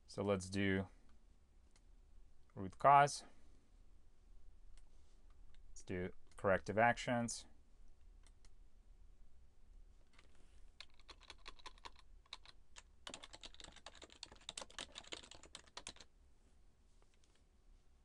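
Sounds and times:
faint keyboard typing: 10.0s - 16.1s.

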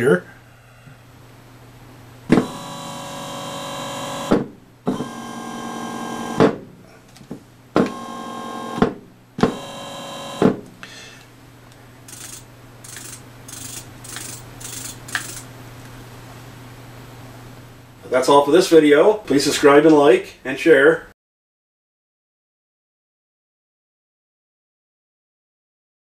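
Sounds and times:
electric motor whining: 2.4s - 4.3s, 9.5s - 10.4s.

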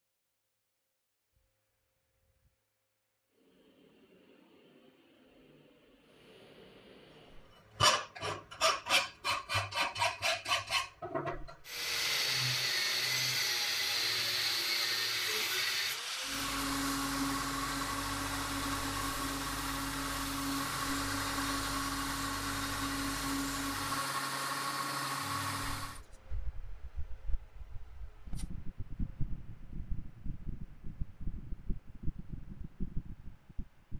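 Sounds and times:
angle grinder cutting steel: 7.6s - 26.0s.

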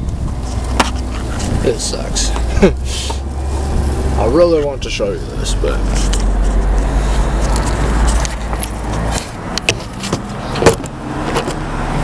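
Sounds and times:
wind buffeting microphone: 0.0s - 9.6s.

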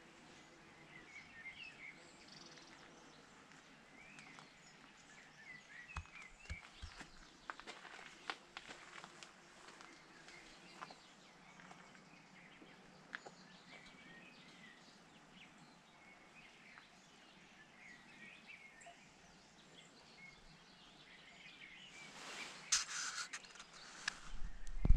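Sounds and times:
faint bird chirps: 9.8s - 24.9s.

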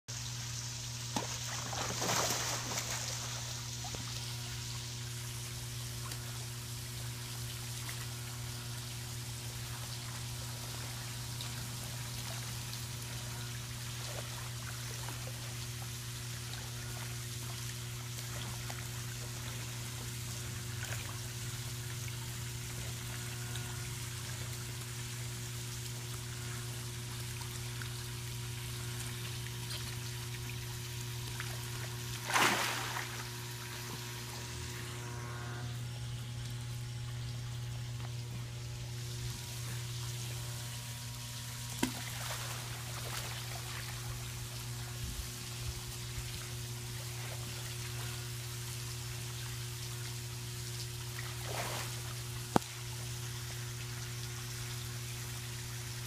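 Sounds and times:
steady low hum: 0.1s - 56.0s
water splashing into pool: 0.8s - 6.4s, 9.5s - 26.4s, 27.0s - 35.1s, 36.4s - 44.8s, 50.7s - 55.7s
dog splashing: 1.2s - 3.5s.

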